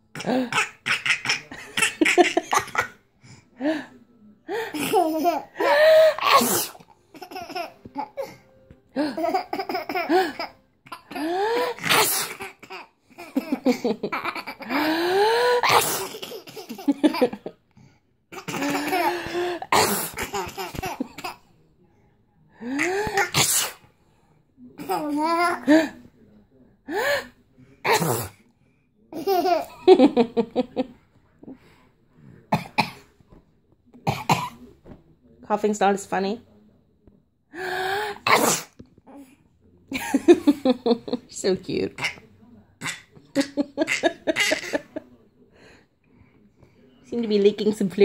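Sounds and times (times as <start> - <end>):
baby laughing: 4.8 - 5.8, 7.2 - 8.3, 9.0 - 15.0
adult fake sneezes: 6.1 - 6.9, 11.6 - 12.5, 15.6 - 16.3, 19.7 - 20.4, 22.8 - 23.9, 27.8 - 28.4, 38.1 - 38.8.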